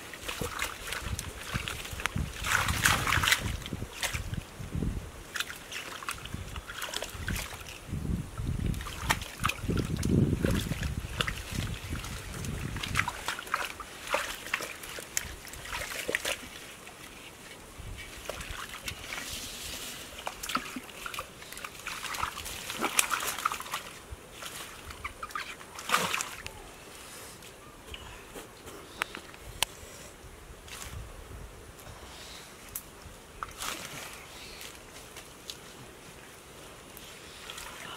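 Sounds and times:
hands splashing in muddy water: 0:00.2 - 0:04.3, 0:05.3 - 0:07.8, 0:08.7 - 0:17.2, 0:20.1 - 0:26.4.

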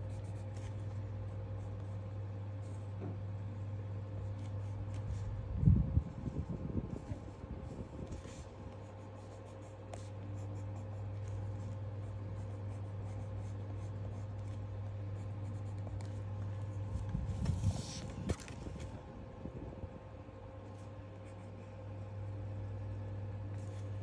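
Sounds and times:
pencil scratching on paper: 0:00.0 - 0:01.9, 0:06.9 - 0:18.1, 0:20.7 - 0:22.1
paper page rustling: 0:06.1 - 0:08.6, 0:15.7 - 0:19.0.

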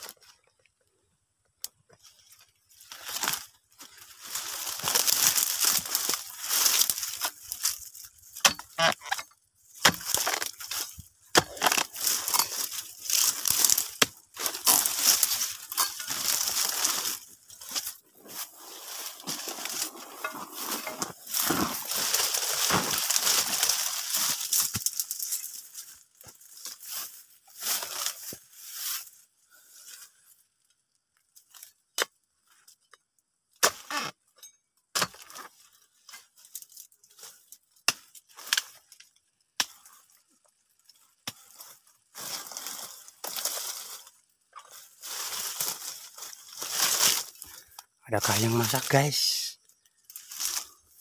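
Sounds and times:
dry leaves rustling and crackling: 0:02.1 - 0:08.8, 0:09.6 - 0:30.3, 0:39.9 - 0:51.0.

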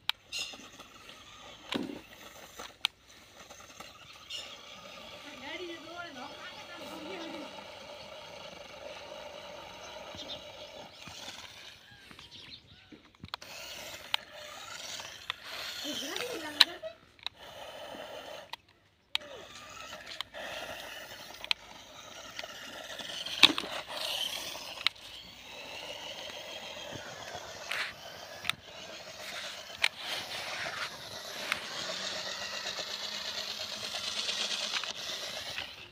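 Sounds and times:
electric motors whining: 0:00.0 - 0:35.9
tyres scraping in loose dirt: 0:00.0 - 0:35.9
sharp clicks: 0:09.6 - 0:35.9.

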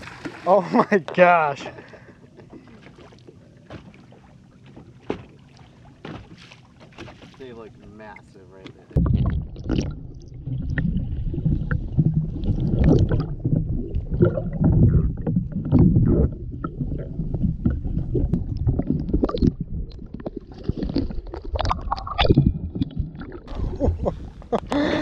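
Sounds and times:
water splashing: 0:00.0 - 0:00.9, 0:02.5 - 0:24.6
muffled underwater rumble: 0:08.9 - 0:25.0.

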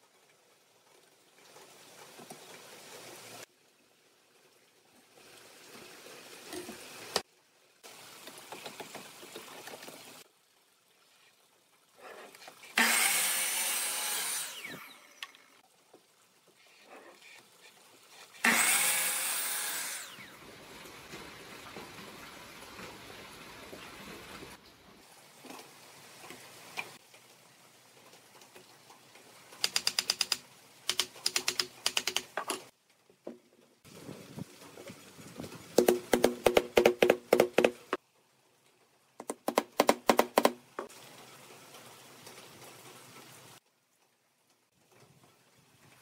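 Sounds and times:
faint workshop background: 0:00.0 - 0:46.0
sharp taps on wood and metal: 0:35.8 - 0:38.0, 0:39.2 - 0:40.6.

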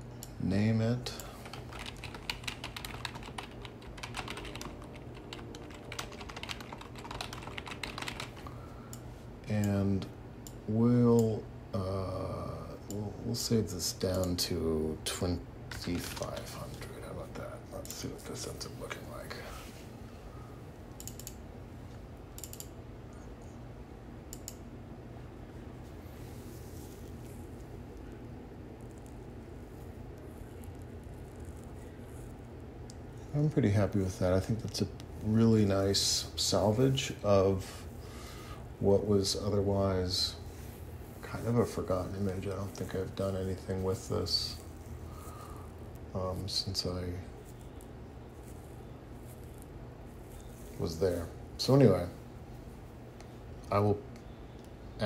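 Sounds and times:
steady low hum: 0:00.0 - 0:55.0
typing on computer keyboard: 0:01.4 - 0:08.5
computer mouse clicks: 0:21.0 - 0:21.4, 0:22.4 - 0:23.3, 0:24.3 - 0:24.7.

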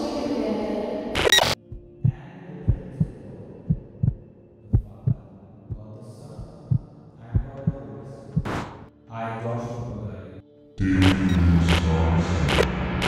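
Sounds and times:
heartbeat thumps: 0:01.2 - 0:03.1, 0:03.7 - 0:05.8, 0:06.4 - 0:07.8, 0:08.4 - 0:08.9.

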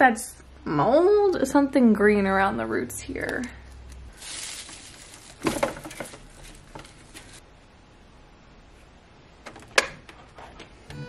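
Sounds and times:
plant stems crackling: 0:03.2 - 0:07.4
leaves and stems rustling: 0:03.3 - 0:07.5.

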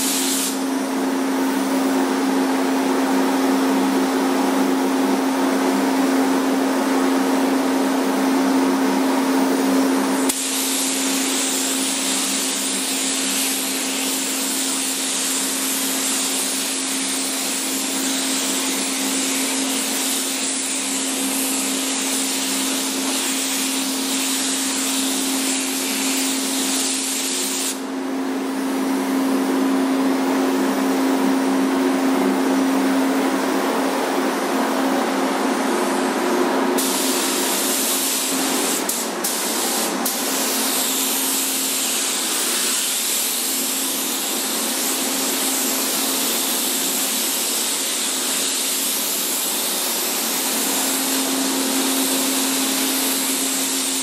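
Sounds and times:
spray gun hissing: 0:00.0 - 0:00.6, 0:10.2 - 0:27.8, 0:36.8 - 0:54.0.

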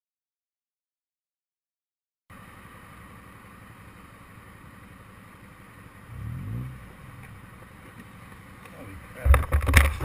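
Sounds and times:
engines idling: 0:02.3 - 0:10.0
engine revving: 0:06.0 - 0:07.6.

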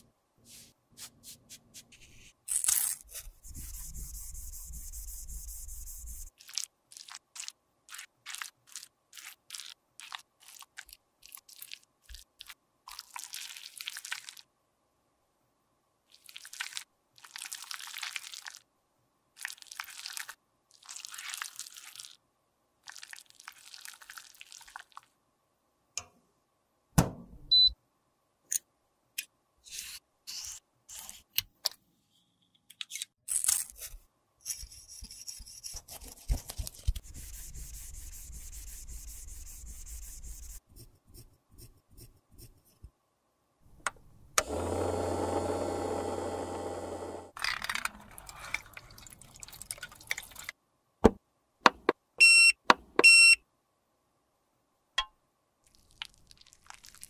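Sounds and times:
steady mechanical hum: 0:43.8 - 0:47.3.

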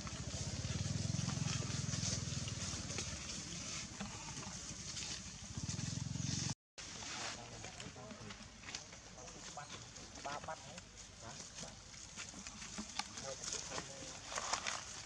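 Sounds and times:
small engine puttering: 0:00.0 - 0:06.6.

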